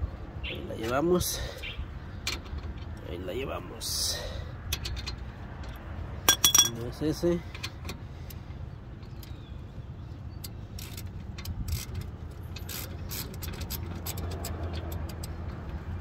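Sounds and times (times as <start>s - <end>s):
ratchet wrench clicking: 10.4s - 15.5s.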